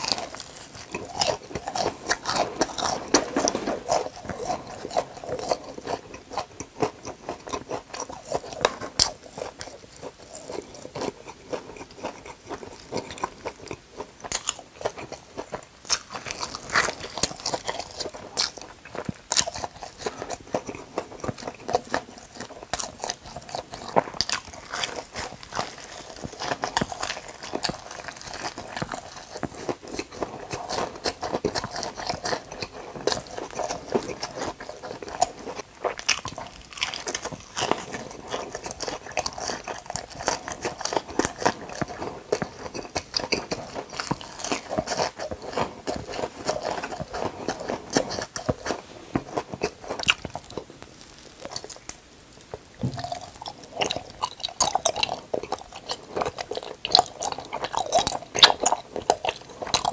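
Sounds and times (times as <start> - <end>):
crunching and chewing fried food: 0.0 - 59.9.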